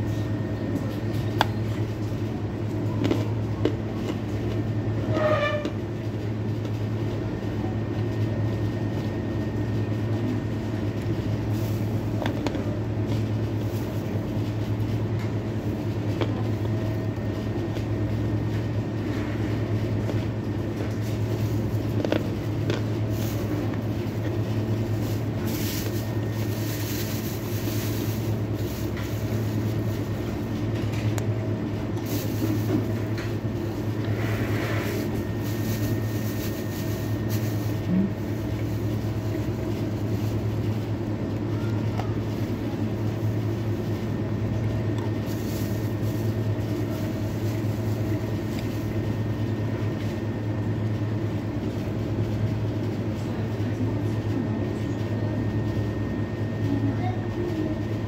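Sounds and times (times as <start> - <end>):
kitchen extractor hood humming: 0.0 - 58.0.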